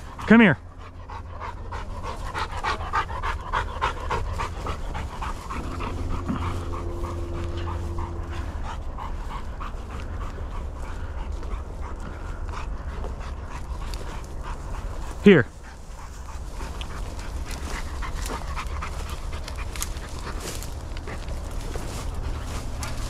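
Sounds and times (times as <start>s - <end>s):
dog panting: 0.0s - 23.0s
steady low rumble: 0.0s - 23.0s.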